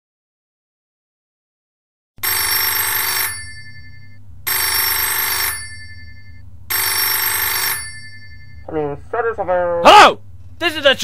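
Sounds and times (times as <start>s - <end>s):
telephone ringing: 2.2s - 9.0s
low steady hum: 2.2s - 11.0s.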